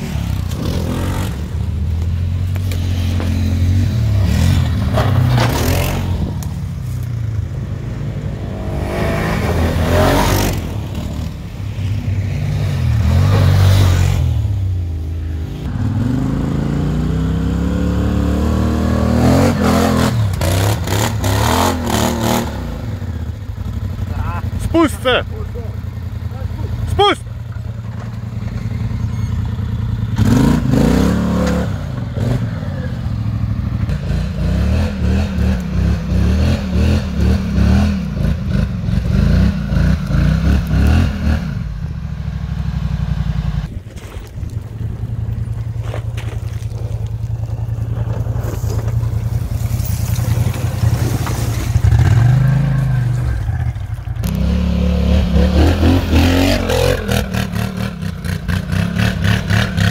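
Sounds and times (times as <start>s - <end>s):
quad bike engines revving: 0.0s - 59.9s
tyres scraping over dirt: 43.7s - 57.6s.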